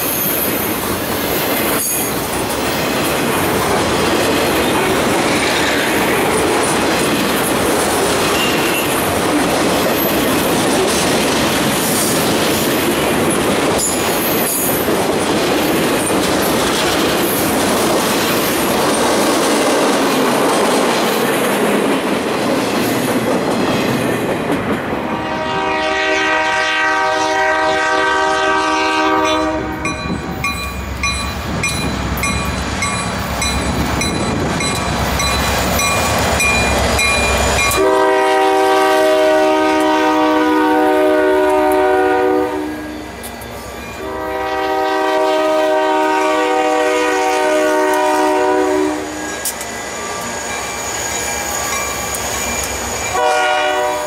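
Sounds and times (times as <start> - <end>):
train wheels clattering on track: 0.0 - 26.0, 27.6 - 42.1, 43.0 - 54.0
locomotive horn chord: 25.1 - 30.1, 37.8 - 42.9, 44.0 - 49.2, 53.1 - 54.0.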